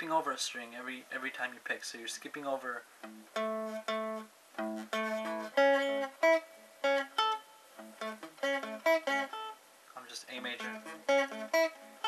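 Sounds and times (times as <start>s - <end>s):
electric guitar picked notes: 3.0s - 9.6s, 10.4s - 12.0s.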